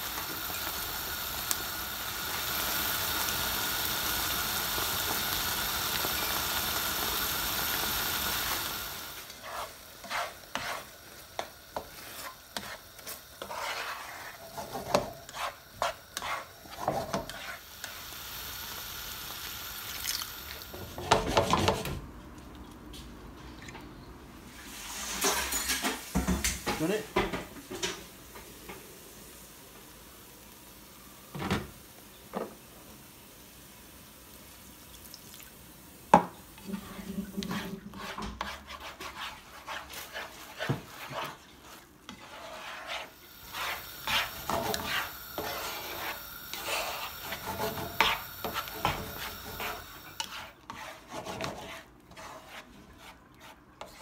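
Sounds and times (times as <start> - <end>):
spatula scraping frying pan: 9.2 - 18.0, 20.8 - 22.0, 36.6 - 54.0.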